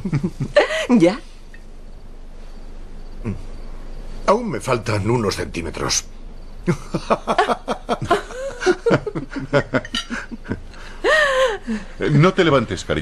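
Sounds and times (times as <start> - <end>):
person laughing: 0.0 - 0.9, 6.7 - 11.8.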